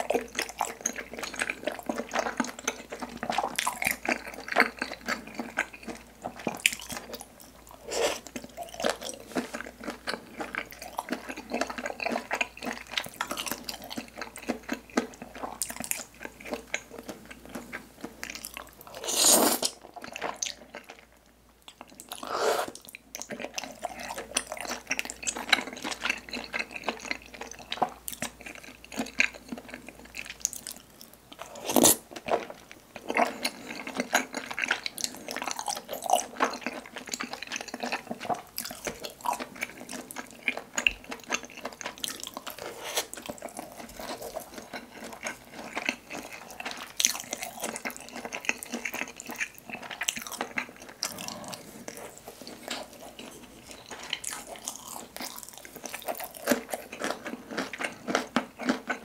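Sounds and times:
wet chewing and lip smacks: 33.0s - 59.0s.

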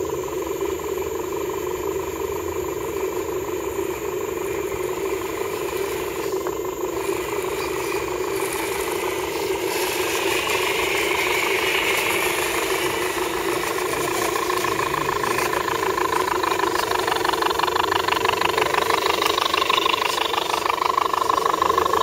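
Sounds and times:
electric motors whining: 0.0s - 22.0s.

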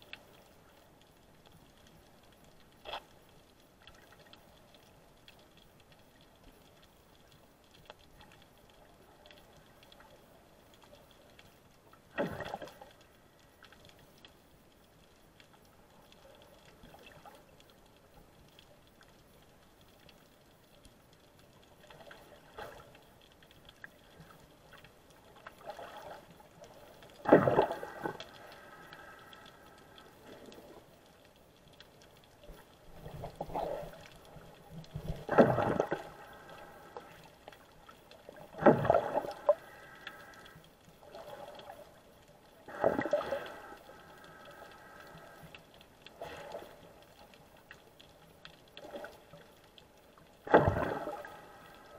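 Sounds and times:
rushing bubbling water: 25.4s - 31.0s, 32.5s - 45.4s, 50.1s - 51.9s.

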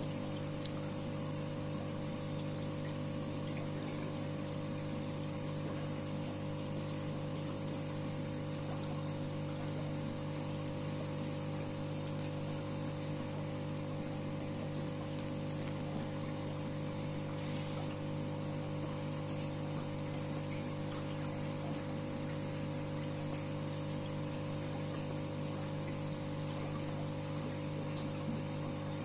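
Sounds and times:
aquarium pump humming: 0.0s - 29.0s
water bubbling: 11.7s - 29.0s.

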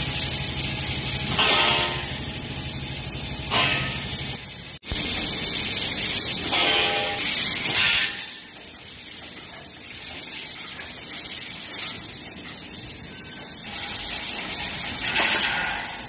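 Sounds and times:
laser cutting machine hissing: 0.0s - 8.6s.

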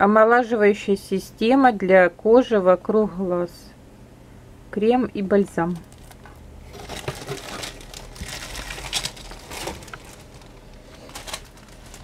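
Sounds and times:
plastic bag rustling: 5.8s - 12.0s.

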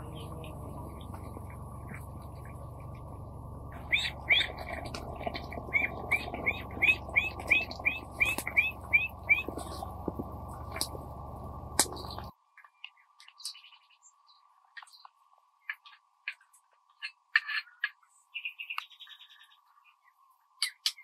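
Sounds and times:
bird chirping: 0.0s - 11.0s, 11.7s - 16.0s, 16.9s - 21.0s
low background rumble: 0.0s - 12.3s.

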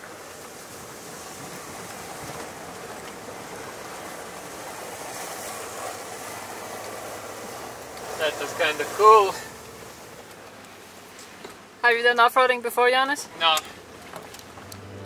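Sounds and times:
water splashing around tyres: 0.0s - 15.0s
truck engine running: 14.3s - 15.0s.

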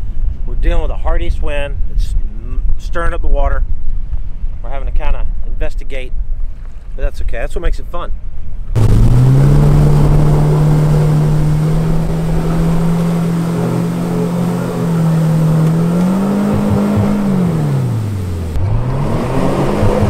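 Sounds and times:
propeller churning water: 8.3s - 20.0s
outboard motor running: 8.8s - 20.0s.

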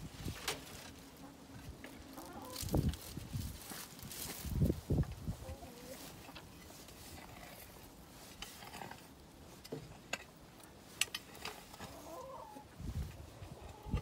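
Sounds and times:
chickens clucking: 0.7s - 2.9s, 5.0s - 6.7s, 11.6s - 14.0s
hoe scraping dirt: 6.0s - 9.2s.

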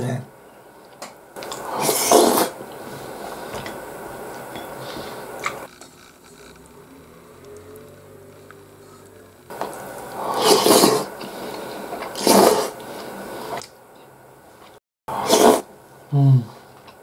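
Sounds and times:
slurping off a spoon: 1.4s - 3.5s, 4.6s - 13.7s, 15.1s - 15.7s
person humming: 6.4s - 9.5s.

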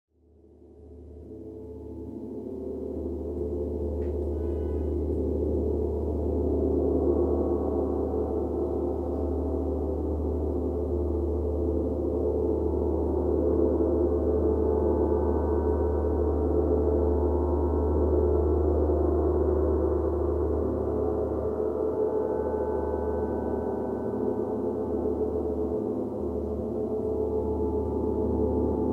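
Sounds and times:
gong shimmer: 1.6s - 28.9s
higher ring: 4.2s - 5.4s.

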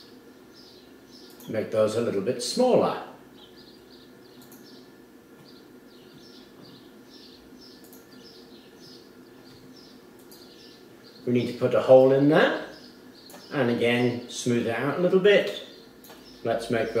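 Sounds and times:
faint regular chirping: 0.0s - 1.6s, 3.3s - 14.4s, 15.4s - 17.0s
low steady hum: 0.0s - 17.0s
soft clicks: 1.2s - 1.5s, 4.4s - 4.7s, 7.8s - 8.2s, 10.2s - 10.6s, 13.2s - 13.5s, 16.0s - 16.3s.

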